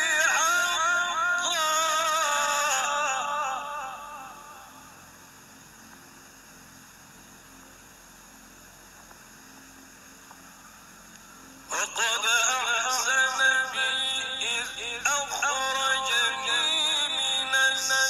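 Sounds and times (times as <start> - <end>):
person chanting with echo: 0.0 - 5.0, 11.7 - 18.0
faint steady hiss: 0.0 - 18.0.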